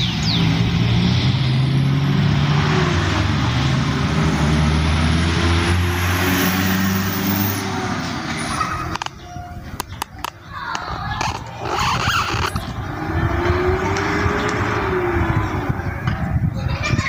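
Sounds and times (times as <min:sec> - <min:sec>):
engine and road noise: 0:00.0 - 0:17.0
engine low hum: 0:11.3 - 0:16.6.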